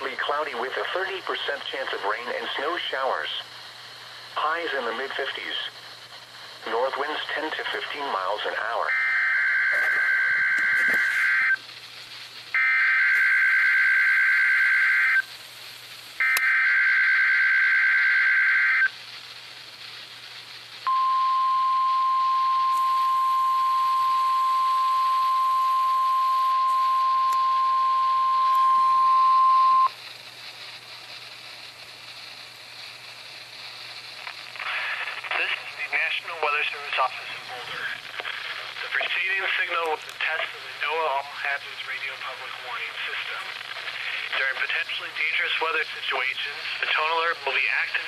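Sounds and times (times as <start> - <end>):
low hiss: 0.0 - 9.0, 10.0 - 48.0
steady alarm tone: 8.8 - 11.6, 12.5 - 15.3, 16.2 - 18.9, 20.9 - 30.0.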